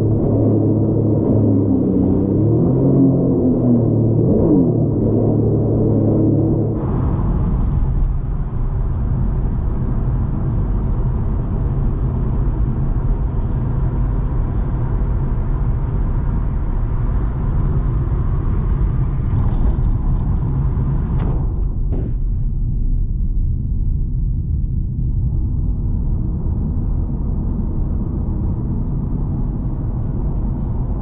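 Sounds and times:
jet ski engine rumble: 0:00.0 - 0:13.1
rushing wind: 0:00.0 - 0:31.0.

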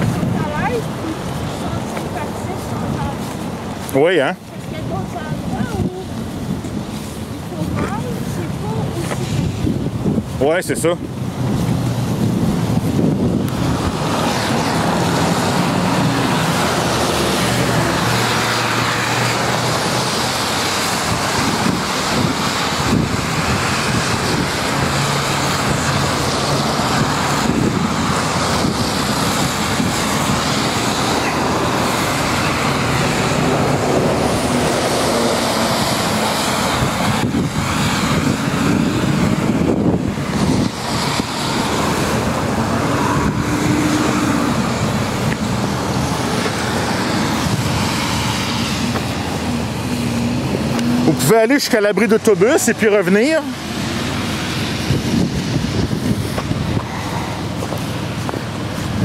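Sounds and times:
traffic on a wet road: 0:00.0 - 0:59.0
vehicle engine rising in pitch: 0:11.7 - 0:57.6.

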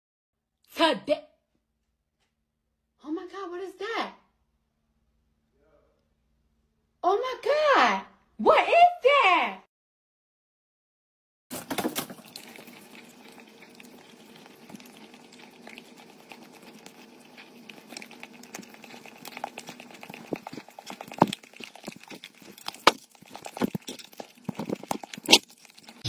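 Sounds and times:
dog licking a metal utensil: 0:12.0 - 0:26.0.

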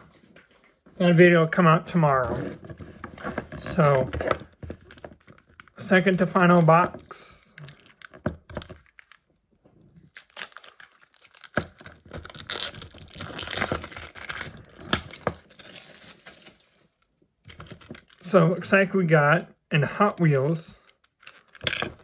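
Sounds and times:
packaging snapping: 0:03.1 - 0:09.2, 0:10.1 - 0:16.7
packaging tearing and crinkling: 0:06.4 - 0:09.2, 0:10.0 - 0:16.9, 0:21.0 - 0:22.0.

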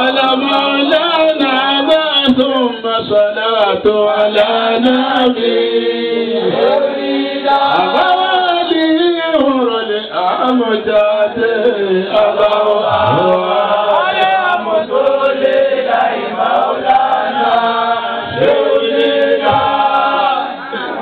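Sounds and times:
men chanting in unison: 0:00.0 - 0:08.8, 0:09.4 - 0:21.0.

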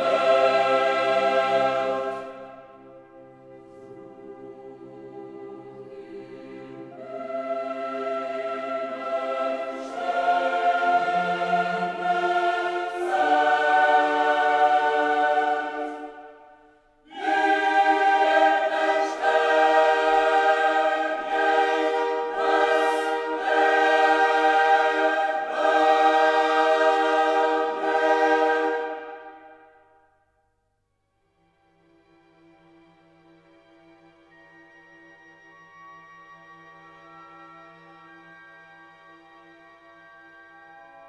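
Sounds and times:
choir singing long chords: 0:00.0 - 0:30.1.

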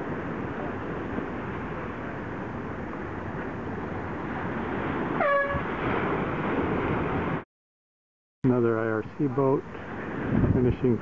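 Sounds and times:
wind and water rushing: 0:00.0 - 0:07.4, 0:08.5 - 0:11.0
air horn blast: 0:05.2 - 0:05.7.

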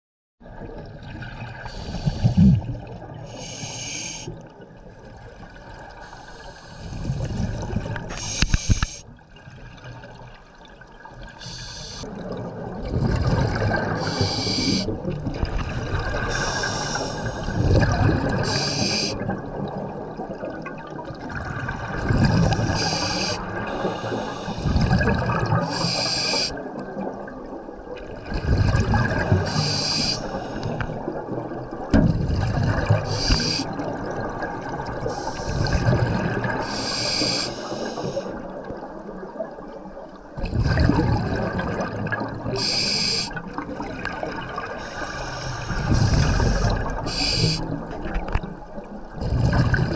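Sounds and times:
regulator inhale hiss: 0:01.6 - 0:02.6, 0:03.3 - 0:04.3, 0:06.0 - 0:07.3, 0:08.1 - 0:09.0, 0:11.4 - 0:12.1, 0:14.0 - 0:14.9, 0:16.3 - 0:17.6, 0:18.4 - 0:19.2, 0:22.5 - 0:24.8, 0:25.6 - 0:26.6, 0:29.4 - 0:30.9, 0:33.1 - 0:33.8, 0:35.0 - 0:35.9, 0:36.6 - 0:38.4, 0:42.6 - 0:43.4, 0:44.8 - 0:47.8
gurgle of exhaust bubbles: 0:12.0 - 0:16.4, 0:17.5 - 0:18.5, 0:19.2 - 0:23.8, 0:24.7 - 0:25.7, 0:28.0 - 0:29.6, 0:30.7 - 0:36.6, 0:40.4 - 0:42.6, 0:45.6 - 0:49.9.

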